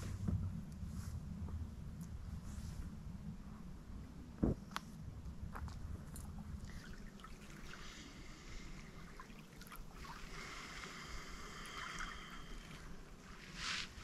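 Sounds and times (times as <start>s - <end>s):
soft steady hiss: 0.0s - 14.0s.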